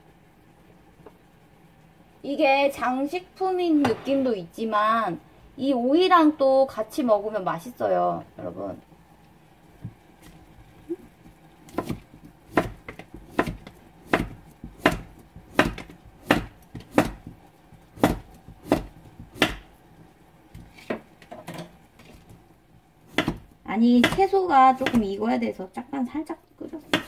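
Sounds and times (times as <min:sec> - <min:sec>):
knife chopping on cutting board: 0:11.7 - 0:19.7, 0:23.1 - 0:25.1.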